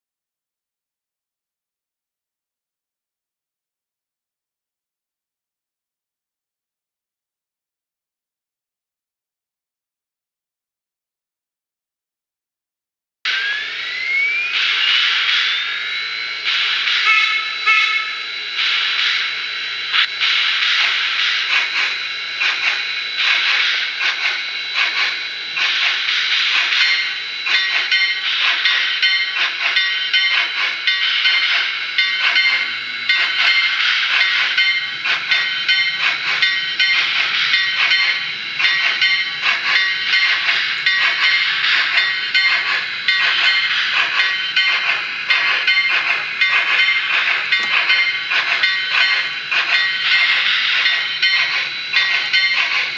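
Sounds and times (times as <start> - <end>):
steam exhaust chuffs with hiss: 14.5 - 52.9
steam whistle: 16.9 - 18.4.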